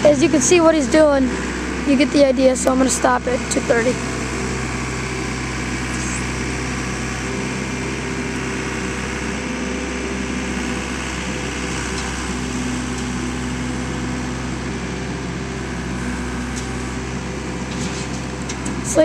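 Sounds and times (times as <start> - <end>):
diesel engine under load: 0.0 - 19.0.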